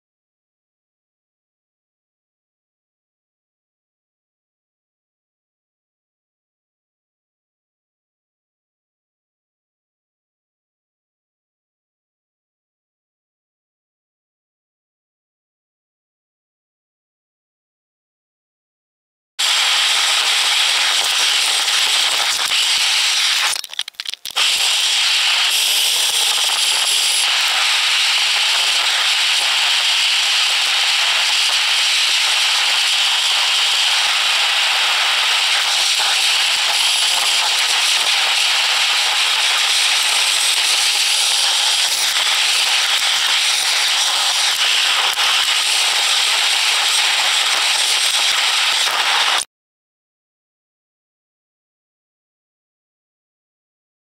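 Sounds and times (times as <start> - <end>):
crackling static hiss: 19.4 - 49.5.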